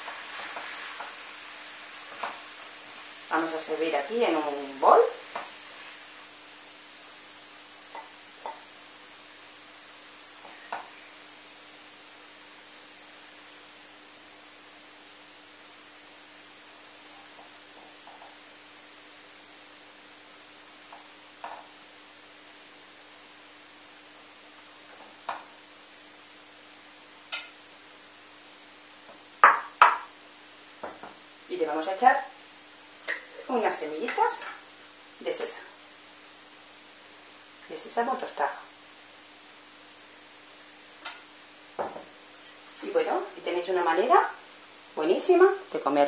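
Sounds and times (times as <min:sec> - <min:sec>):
faint steady hiss: 0:00.0 - 0:46.0
faint steady hum: 0:00.0 - 0:46.0
spatula knocking and scraping wok: 0:29.4 - 0:30.1.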